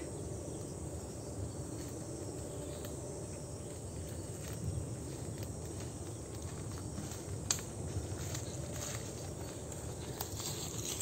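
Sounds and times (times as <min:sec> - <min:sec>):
footsteps on dry leaves: 0:04.2 - 0:11.0.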